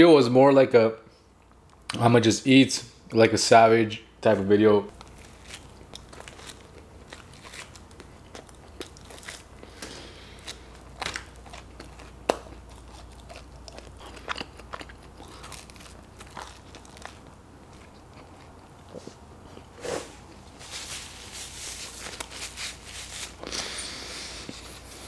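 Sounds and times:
chewing and biting food: 0:05.0 - 0:20.4
paper napkin rustling: 0:19.8 - 0:25.0.

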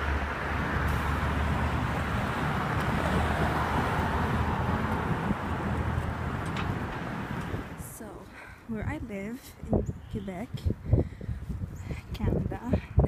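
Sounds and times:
distant traffic hiss: 0:00.0 - 0:08.7
low wind rumble: 0:00.0 - 0:13.0.

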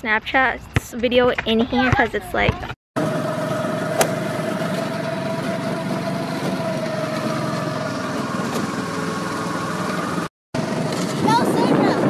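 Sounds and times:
go-kart engine running: 0:03.0 - 0:12.0.

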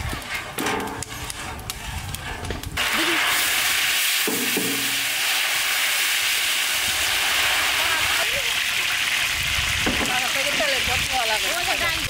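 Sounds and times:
garlic sizzling in hot oil: 0:02.8 - 0:12.0.

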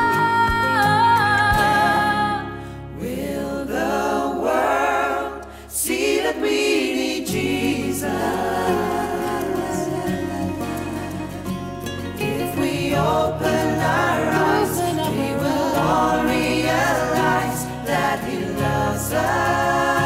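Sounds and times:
voices singing gospel song: 0:00.0 - 0:20.0
instrumental backing: 0:07.4 - 0:20.0.

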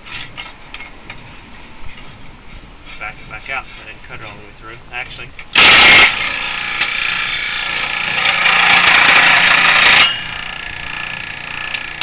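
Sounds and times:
saw blade cutting wood: 0:05.6 - 0:12.0
scroll saw running: 0:05.6 - 0:12.0.

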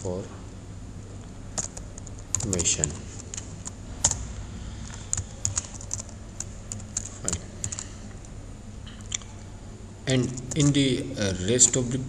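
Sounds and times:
keyboard typing clicks: 0:04.8 - 0:07.9, 0:10.4 - 0:10.8.

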